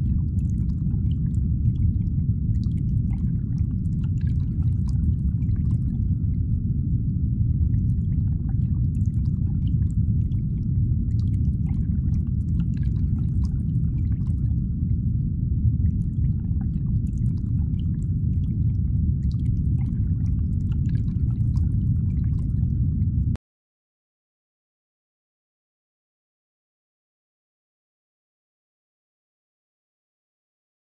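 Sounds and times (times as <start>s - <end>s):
low rumbling: 0.0s - 23.4s.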